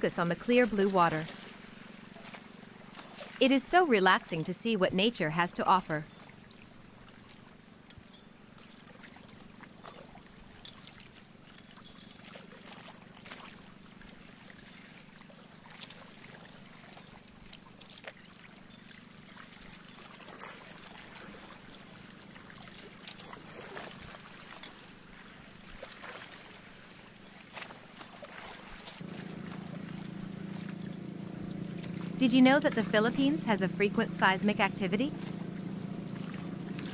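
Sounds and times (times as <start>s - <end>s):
low steady hum: 0.0s - 2.6s, 3.4s - 6.3s, 29.0s - 36.9s
water lapping against boat hull: 0.0s - 36.9s.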